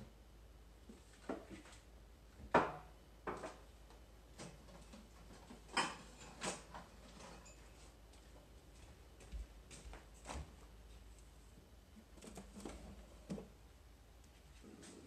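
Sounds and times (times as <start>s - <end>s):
ceramic dishes clinking and knocking: 5.7s - 6.4s.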